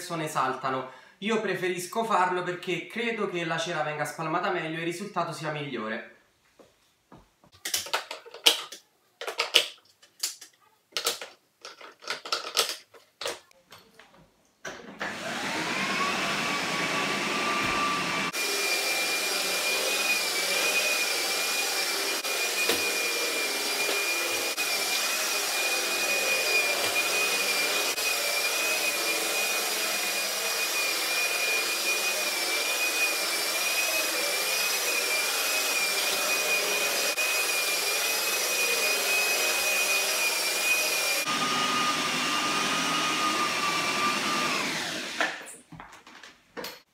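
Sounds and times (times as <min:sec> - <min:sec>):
floor polisher motor whine: 0:15.0 - 0:45.4.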